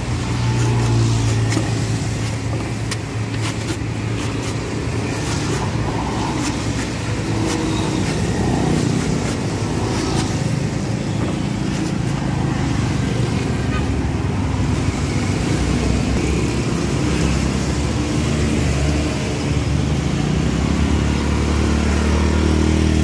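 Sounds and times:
road traffic: 0.0s - 23.0s
cleaver chopping coconut husk: 0.4s - 10.4s.

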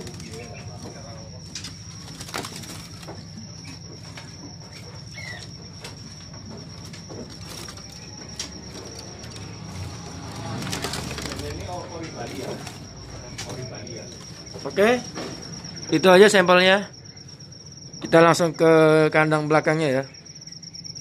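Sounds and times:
clicks and flutters from bird cages: 0.0s - 15.8s
bird chirp: 0.0s - 18.6s, 19.6s - 21.0s.

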